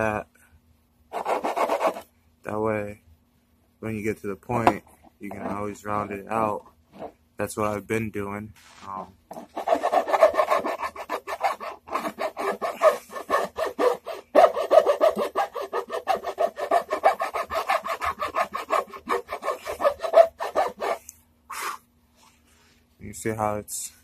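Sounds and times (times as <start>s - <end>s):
file rasping on wood: 1.1s - 2.1s, 9.3s - 21.1s.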